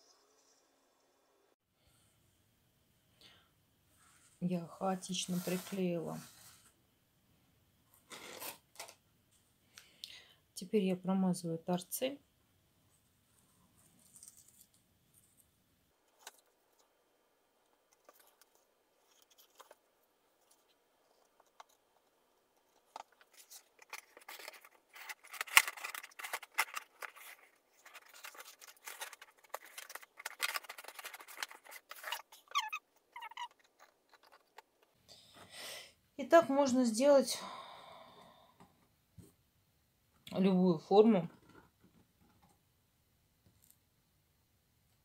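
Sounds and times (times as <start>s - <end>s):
cardboard crackling and rustling: 17.9s - 35.0s
short squeaky sounds: 31.9s - 34.6s.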